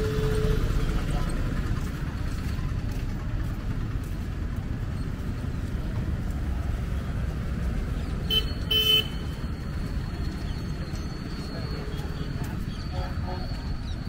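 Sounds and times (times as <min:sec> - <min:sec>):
vehicle horn honking: 0:00.0 - 0:00.9, 0:08.3 - 0:09.4
low street rumble: 0:00.0 - 0:14.0.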